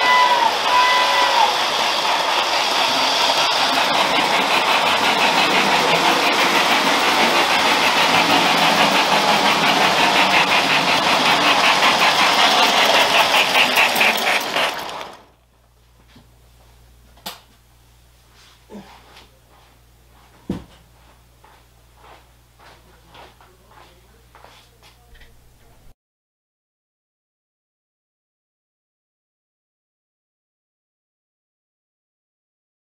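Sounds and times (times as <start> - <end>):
model train rumbling and rattling: 0.0 - 15.4.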